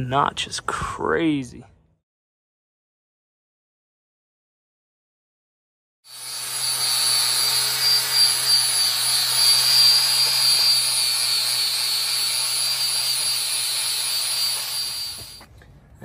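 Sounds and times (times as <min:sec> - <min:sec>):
angle grinder grinding metal: 0:06.1 - 0:15.4.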